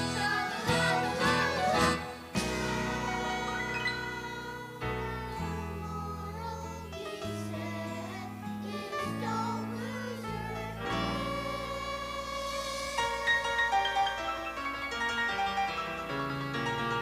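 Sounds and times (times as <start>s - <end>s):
instrumental accompaniment: 0.0s - 4.8s, 10.8s - 17.0s
children's choir singing: 0.0s - 15.6s.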